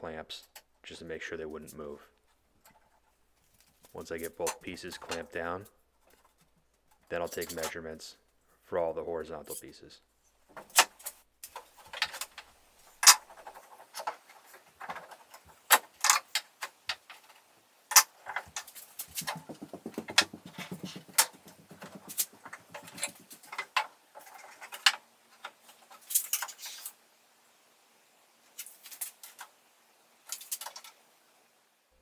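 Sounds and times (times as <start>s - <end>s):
quick rattling: 18.3s - 24.8s.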